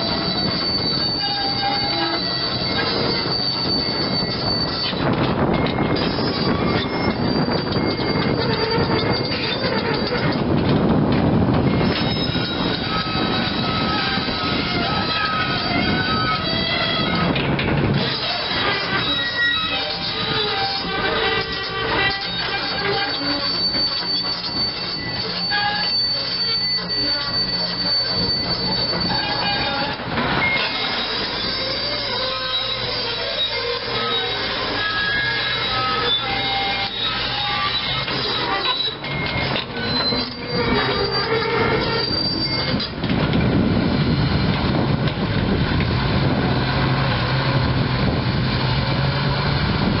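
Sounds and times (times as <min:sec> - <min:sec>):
undercarriage squealing: 0:00.0 - 0:47.8
track chain clanking: 0:00.0 - 0:50.0
diesel engine running: 0:12.4 - 0:50.0.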